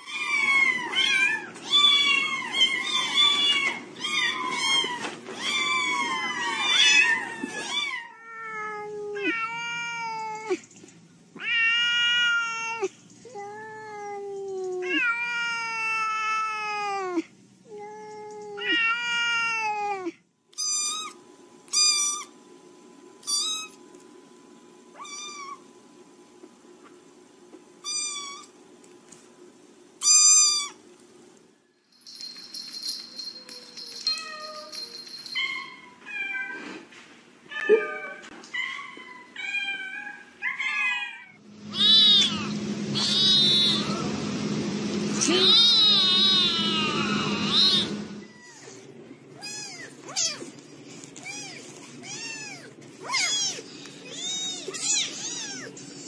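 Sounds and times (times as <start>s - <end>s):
cats and kittens meowing: 0.0s - 10.6s, 11.4s - 22.3s, 24.9s - 25.7s, 27.8s - 28.5s, 33.2s - 36.9s, 37.5s - 44.0s, 45.2s - 56.0s.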